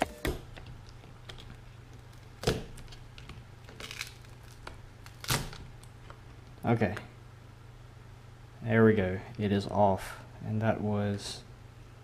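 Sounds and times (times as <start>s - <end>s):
low steady hum: 0.0s - 12.0s
plastic cover cracking: 0.3s - 6.2s.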